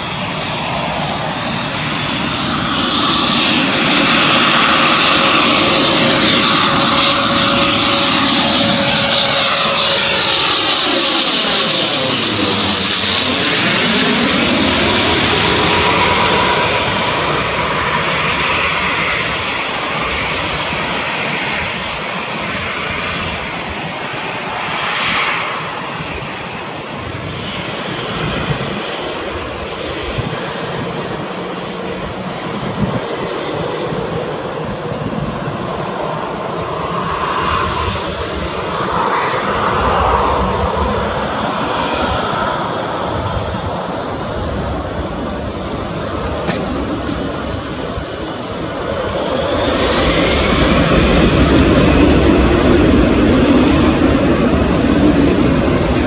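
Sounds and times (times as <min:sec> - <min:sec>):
aircraft touchdown rumble: 0:00.0 - 0:56.0
jet airliner engines: 0:00.0 - 0:56.0
turboprop airliner passing overhead: 0:00.0 - 0:56.0.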